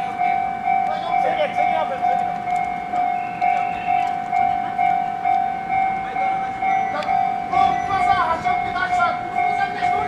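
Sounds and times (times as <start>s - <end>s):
level-crossing warning bell: 0.0s - 10.0s.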